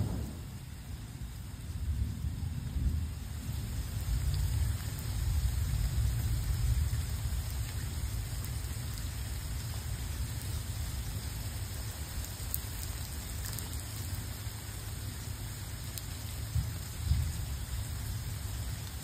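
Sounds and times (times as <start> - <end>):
thunder rumbling: 0.0 - 11.2
rain falling: 0.0 - 19.0.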